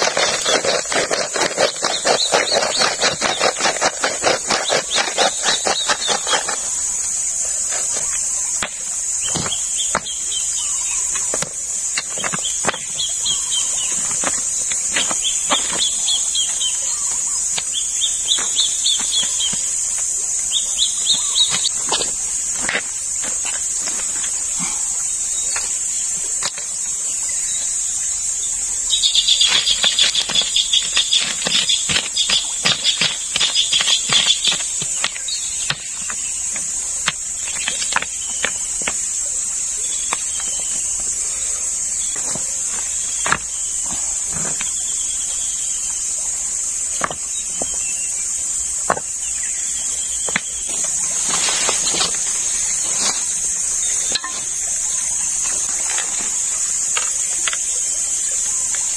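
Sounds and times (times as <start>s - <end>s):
insects chorus: 0.0s - 58.9s
rapidly pulsing insect call: 0.0s - 58.9s
river stones clicking: 29.4s - 36.2s.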